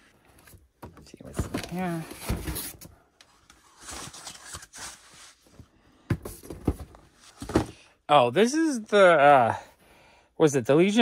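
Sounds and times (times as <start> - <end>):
cardboard and plastic rustling: 0.3 - 7.8.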